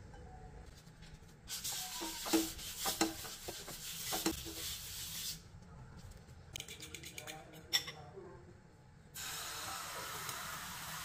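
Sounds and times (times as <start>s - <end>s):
paper tissue rubbing frying pan: 0.7s - 5.4s.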